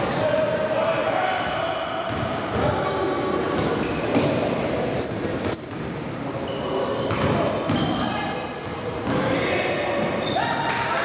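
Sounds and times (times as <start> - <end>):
din of players and spectators: 0.0 - 11.0
shoes squeaking on wooden floor: 3.6 - 6.7.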